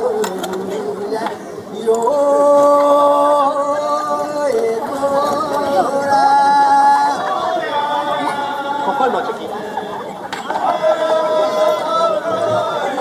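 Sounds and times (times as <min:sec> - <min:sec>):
voices chattering: 0:00.0 - 0:13.0.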